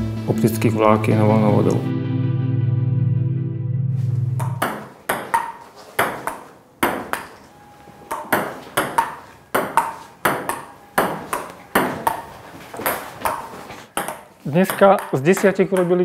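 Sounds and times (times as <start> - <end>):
table tennis ball knocking: 4.4 - 7.5, 8.1 - 16.0.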